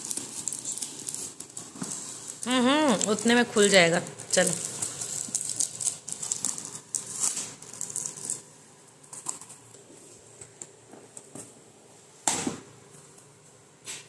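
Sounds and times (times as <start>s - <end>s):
packing tape ripping off cardboard: 0.0s - 2.4s, 4.3s - 8.4s.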